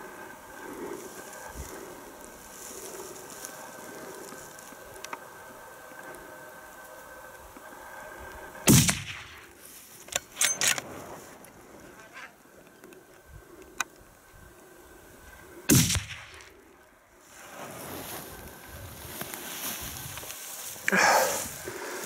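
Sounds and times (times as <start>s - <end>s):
rifle shots with echo: 8.7s - 9.4s, 15.7s - 16.4s.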